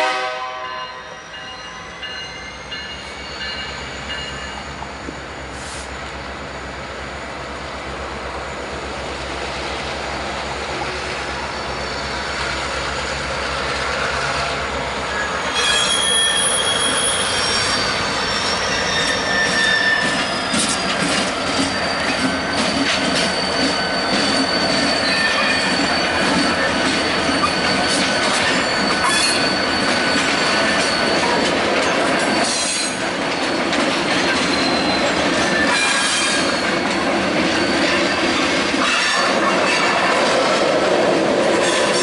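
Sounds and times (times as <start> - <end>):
diesel locomotive engine hum: 0.0 - 42.0
wheel flanges squealing: 1.1 - 7.7, 8.3 - 40.3
wheels clicking on rail joints: 11.1 - 42.0.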